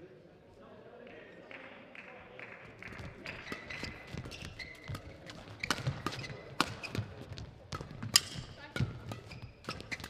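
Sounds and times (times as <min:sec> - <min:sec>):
shoes squeaking on court: 0:03.0 - 0:10.0
rackets hitting shuttlecock: 0:03.2 - 0:10.0.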